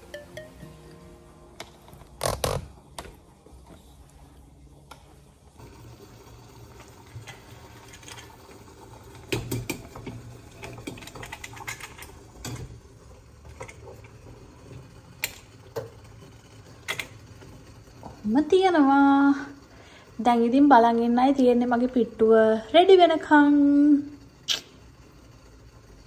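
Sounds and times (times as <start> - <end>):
metal steamer clinking and scraping: 6.7 - 12.8.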